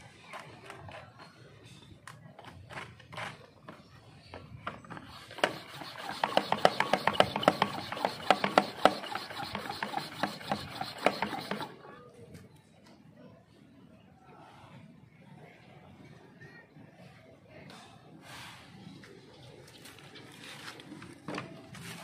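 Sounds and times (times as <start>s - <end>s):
garden sprayer pump squeaking: 4.7s - 11.8s.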